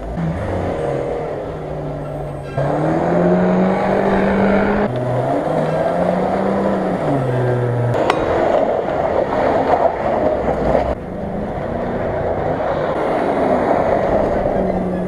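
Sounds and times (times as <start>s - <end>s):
engine revving hard: 0.1s - 8.1s.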